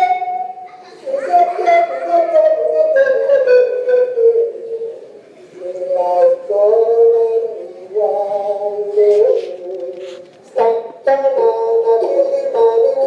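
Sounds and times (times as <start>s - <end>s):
person singing long notes: 0.0s - 13.0s.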